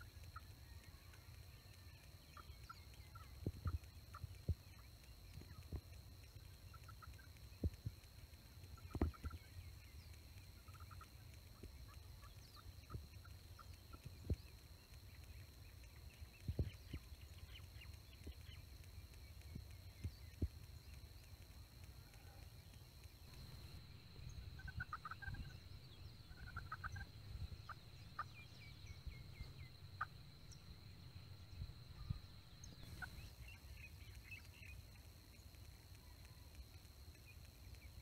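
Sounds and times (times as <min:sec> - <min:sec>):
turkeys gobbling faintly: 0:00.0 - 0:37.8
low wind rumble: 0:23.1 - 0:33.7.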